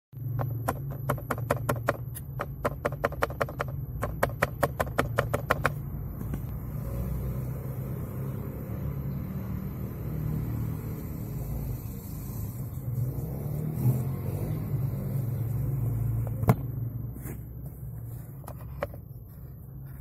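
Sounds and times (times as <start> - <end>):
rapid plastic clicking: 0.2 - 5.8.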